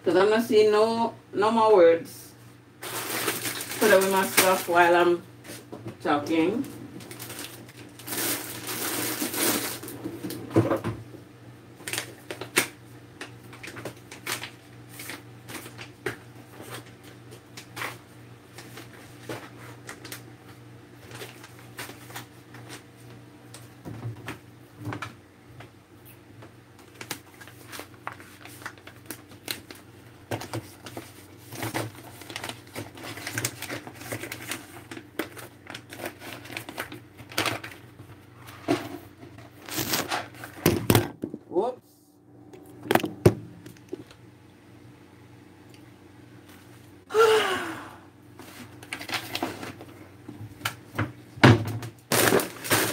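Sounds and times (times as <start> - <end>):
grocery bag rustling: 2.8 - 5.7, 6.3 - 10.4, 26.9 - 38.6, 39.4 - 40.6, 52.1 - 52.9
packages clicking and knocking: 26.8 - 37.8, 48.8 - 52.9
steady low hum: 37.8 - 48.8.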